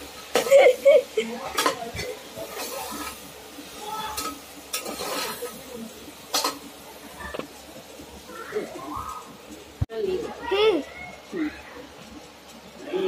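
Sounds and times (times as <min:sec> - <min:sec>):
meat sizzling in hot oil: 0:00.0 - 0:13.0
metal ladle scraping pot: 0:04.2 - 0:05.6.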